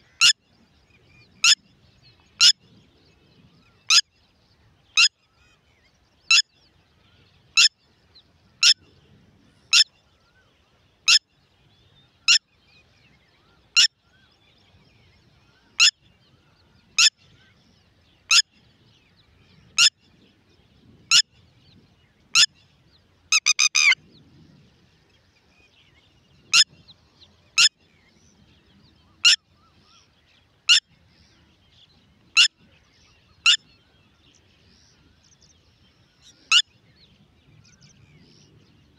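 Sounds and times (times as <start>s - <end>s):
lapwing calling: 18.3s - 18.5s, 23.3s - 24.0s, 36.2s - 36.7s.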